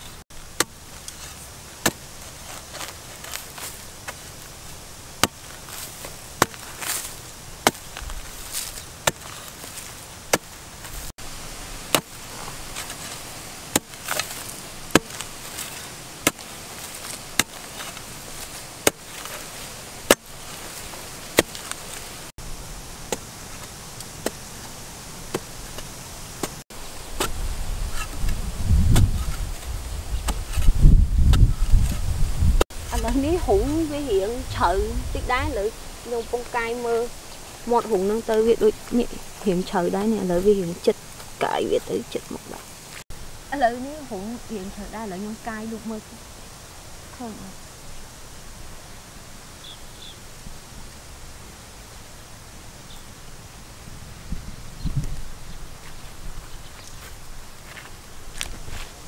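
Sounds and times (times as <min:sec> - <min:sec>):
hoe blade striking hard soil: 0:00.4 - 0:11.1, 0:11.8 - 0:22.2, 0:23.1 - 0:32.0.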